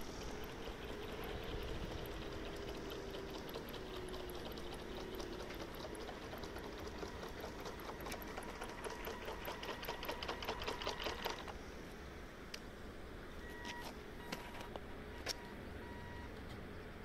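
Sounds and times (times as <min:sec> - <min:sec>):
small motor rapid ticking: 0:00.0 - 0:11.6.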